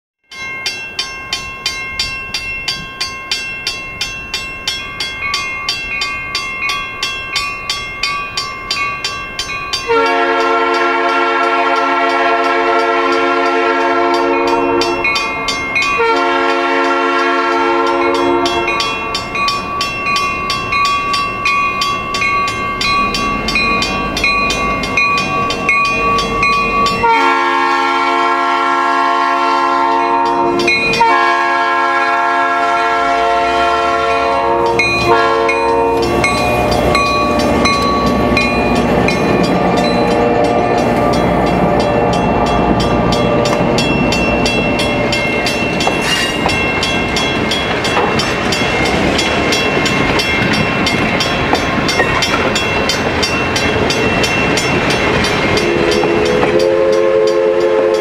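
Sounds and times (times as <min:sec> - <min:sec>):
crossing warning bell ringing: 0:00.2 - 0:58.0
locomotive air horn blasts: 0:09.9 - 0:15.0, 0:16.0 - 0:18.7, 0:27.0 - 0:36.7, 0:39.6 - 0:42.1, 0:55.6 - 0:58.0.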